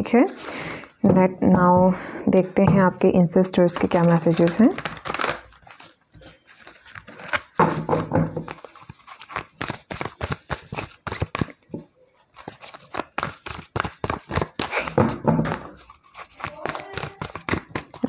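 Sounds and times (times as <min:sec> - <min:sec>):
cards being shuffled by hand: 0:03.6 - 0:18.0.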